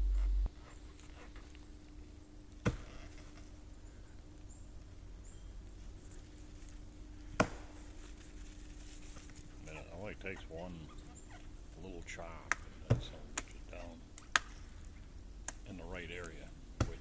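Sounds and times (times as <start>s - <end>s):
axe chopping wood: 2.6s - 2.9s, 7.4s - 7.7s, 16.8s - 17.0s.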